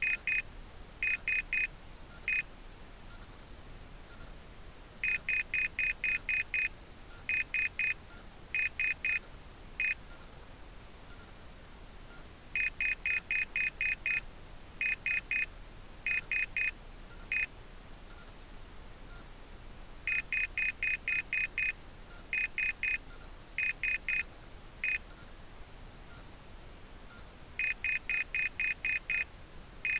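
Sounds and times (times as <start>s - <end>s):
short high-pitched beeps: 0.0s - 0.4s, 1.0s - 2.4s, 5.0s - 9.2s, 12.1s - 14.2s, 14.8s - 15.5s, 16.1s - 17.5s, 20.1s - 25.3s, 27.1s - 29.9s.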